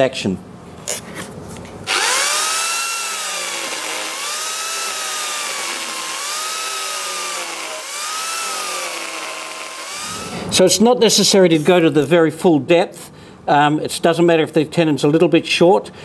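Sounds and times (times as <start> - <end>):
angle grinder cutting wood: 1.9 - 10.6.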